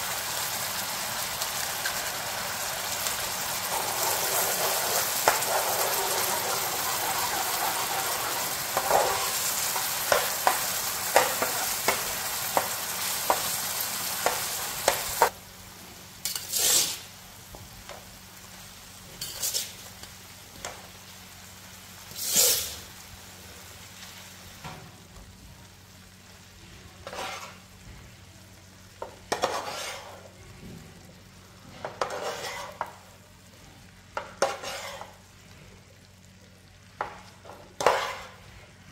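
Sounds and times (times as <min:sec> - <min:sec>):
food sizzling in a frying pan: 0:00.0 - 0:38.9
metal spatula scraping a pan: 0:03.4 - 0:12.7, 0:16.3 - 0:17.0, 0:19.2 - 0:19.8, 0:22.1 - 0:22.8, 0:27.0 - 0:27.7, 0:29.3 - 0:30.3, 0:31.6 - 0:33.0, 0:34.2 - 0:35.2, 0:37.4 - 0:38.6.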